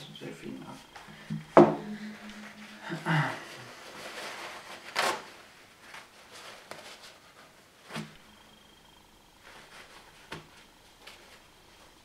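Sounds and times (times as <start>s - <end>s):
paper towel rustling and crumpling: 2.4s - 8.1s, 9.4s - 12.0s.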